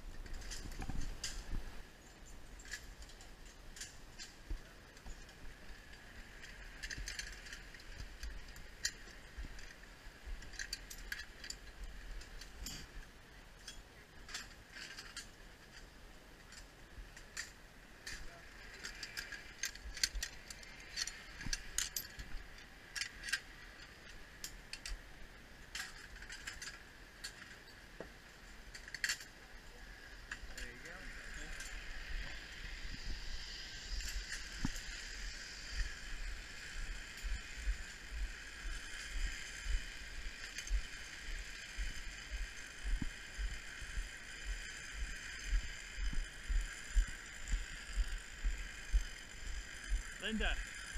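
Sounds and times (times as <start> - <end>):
metal carabiners clinking: 6.3 - 13.0, 13.6 - 25.0.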